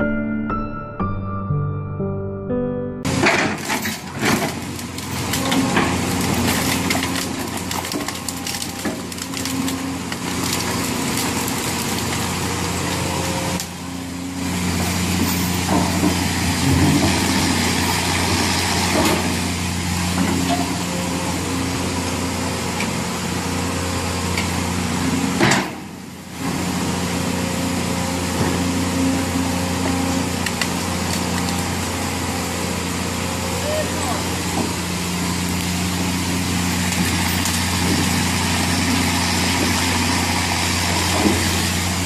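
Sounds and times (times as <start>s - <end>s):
diesel engine running: 2.0s - 42.0s
sticks cracking and splintering: 3.4s - 13.7s, 30.3s - 32.0s, 34.6s - 42.0s.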